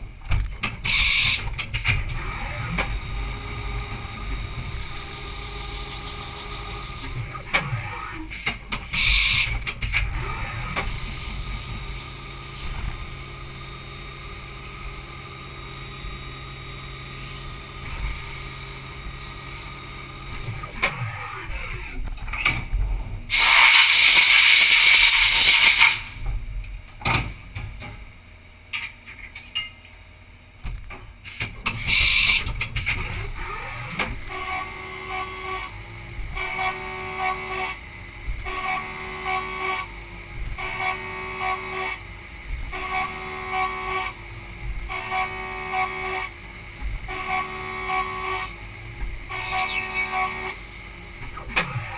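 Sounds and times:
milling machine humming: 0:02.0 - 0:07.9, 0:33.3 - 0:51.9
pulsing spindle whine: 0:02.1 - 0:08.0, 0:47.0 - 0:51.9
compressed air hiss: 0:23.3 - 0:26.1.

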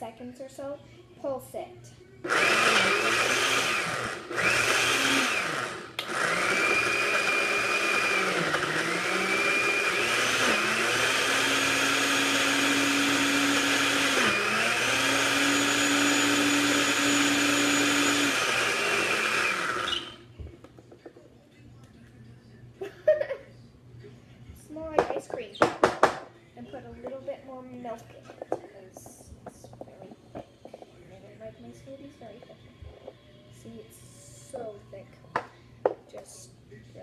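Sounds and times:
blender motor running: 0:02.2 - 0:20.3.

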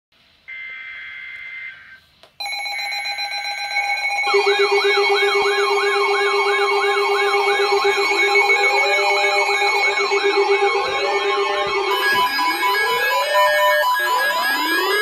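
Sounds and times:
steady alarm tones: 0:00.5 - 0:15.0
warbling siren-like tone: 0:04.2 - 0:15.0
weather radio alert tone: 0:04.3 - 0:15.0.

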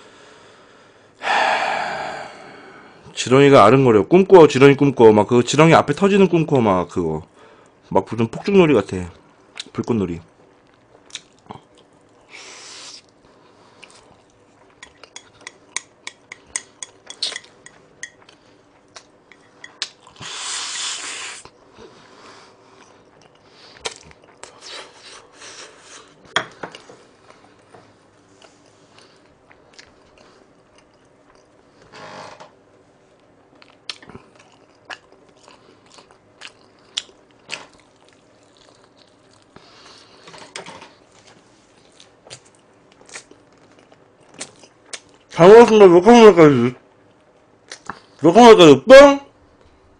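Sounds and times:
chewing and mouth sounds: 0:10.6 - 0:12.2, 0:13.0 - 0:20.2, 0:22.7 - 0:27.7, 0:28.4 - 0:31.6, 0:33.5 - 0:40.2, 0:41.1 - 0:45.4, 0:47.6 - 0:48.2
chopsticks clicking on a plate: 0:14.8 - 0:18.2.

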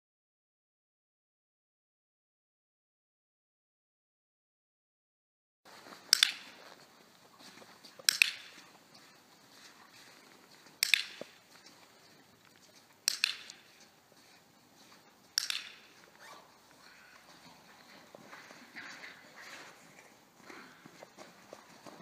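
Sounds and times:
dog-training clicker clicking: 0:08.0 - 0:08.6, 0:10.8 - 0:11.3, 0:13.0 - 0:13.7, 0:15.3 - 0:15.9.

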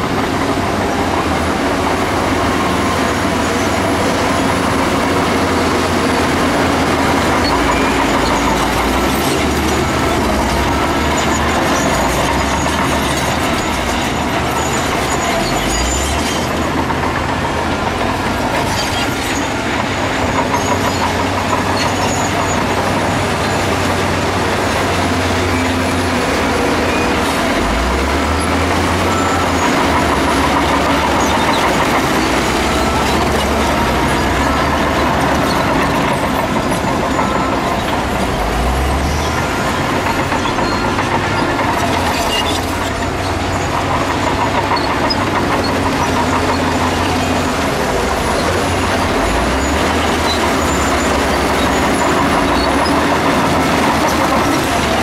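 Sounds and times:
heavy machine diesel engines: 0:00.0 - 0:55.0.

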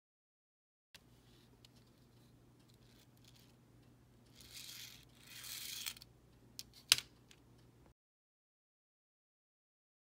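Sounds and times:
metal wheels rolling on model track: 0:04.3 - 0:06.0.

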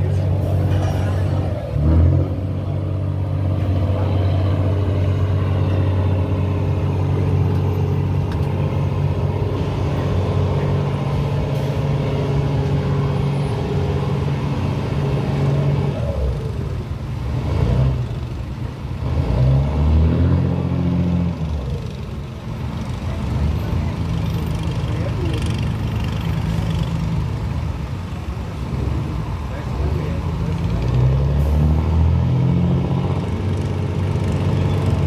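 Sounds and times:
engine revving: 0:00.0 - 0:07.6, 0:09.4 - 0:18.3, 0:19.0 - 0:22.0, 0:29.8 - 0:35.0
diesel engines droning: 0:00.0 - 0:35.0.

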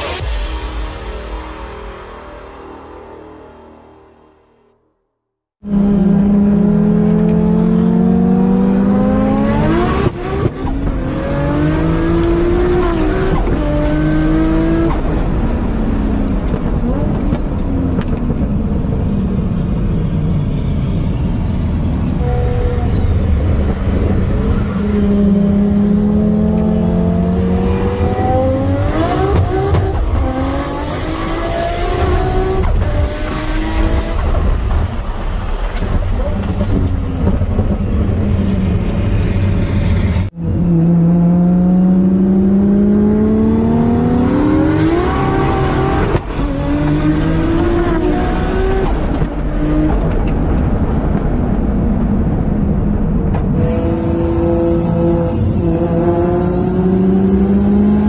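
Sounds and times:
car engine accelerating hard: 0:22.2 - 0:58.0.

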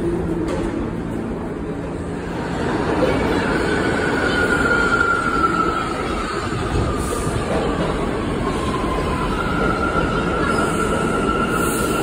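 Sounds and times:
subway train rumble: 0:00.0 - 0:12.0.

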